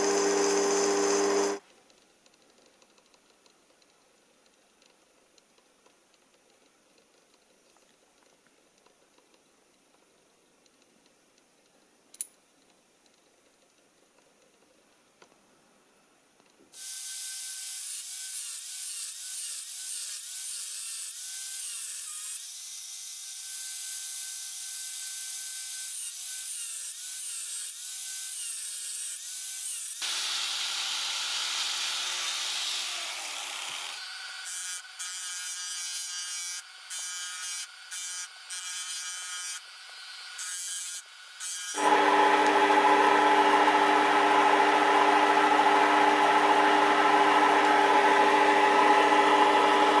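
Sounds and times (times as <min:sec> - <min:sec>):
angle grinder cutting metal: 0:00.0 - 0:01.6, 0:16.8 - 0:50.0
belt sander grinding metal: 0:00.0 - 0:01.6, 0:28.6 - 0:50.0.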